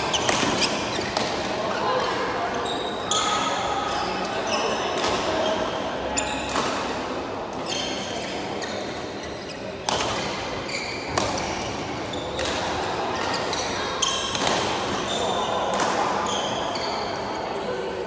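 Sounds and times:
shoes squeaking on court floor: 0.0 - 1.3, 2.4 - 6.6, 7.6 - 10.0, 10.6 - 12.6, 13.2 - 17.3
racket hitting shuttlecock: 0.1 - 1.6, 9.8 - 10.4, 11.1 - 13.4, 14.1 - 15.1, 15.7 - 16.2.

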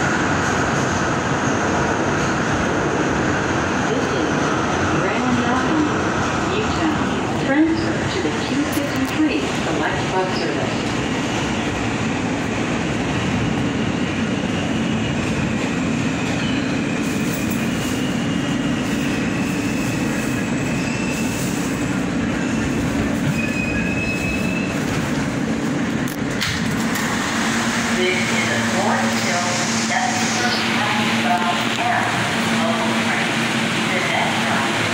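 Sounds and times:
train wheels rumbling on rail: 0.0 - 34.9
high wheel squeals: 16.4 - 21.6, 22.4 - 24.9.

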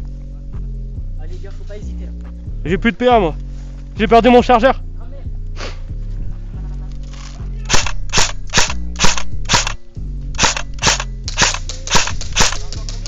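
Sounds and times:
airsoft gun shots: 7.7 - 12.8.

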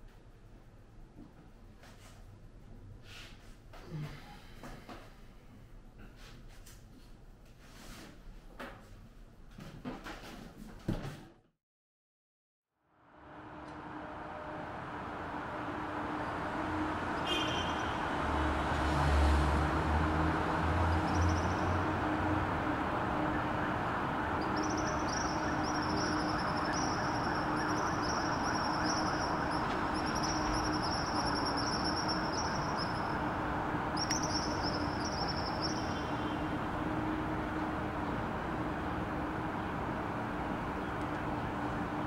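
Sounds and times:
distant traffic hum: 13.0 - 42.0.

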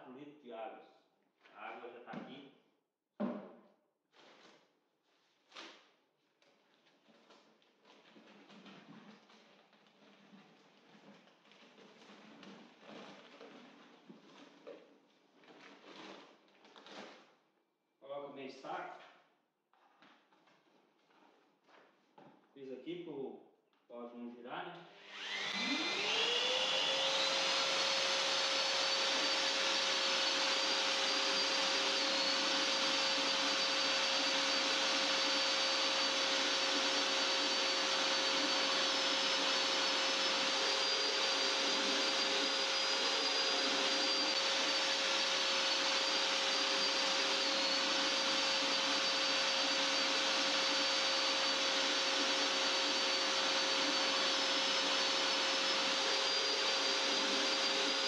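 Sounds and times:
electric drill mixing in bucket: 6.9 - 17.4, 24.8 - 58.0.

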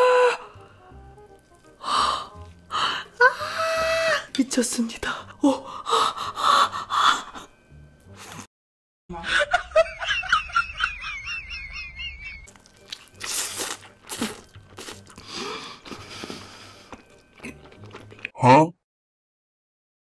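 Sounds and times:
chewing fried chicken: 12.5 - 18.3.

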